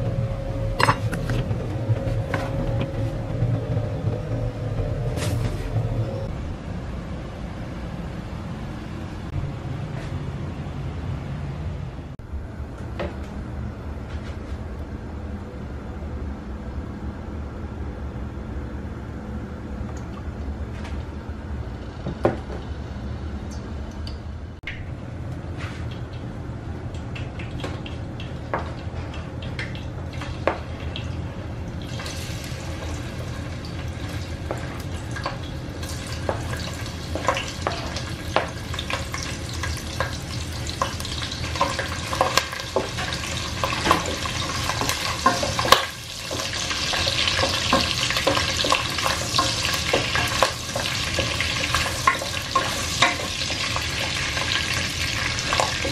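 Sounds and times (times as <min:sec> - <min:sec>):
low steady hum: 0:00.0 - 0:55.9
meat sizzling in hot oil: 0:31.8 - 0:55.9.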